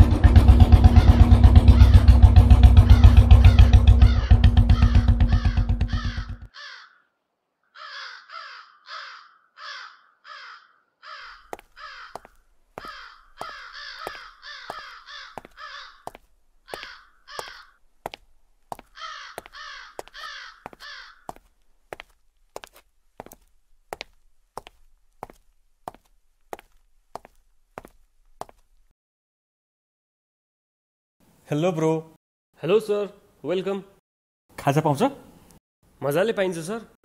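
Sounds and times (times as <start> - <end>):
loud low pulsing sound: 0.0 - 6.5
crows cawing: 0.2 - 26.0.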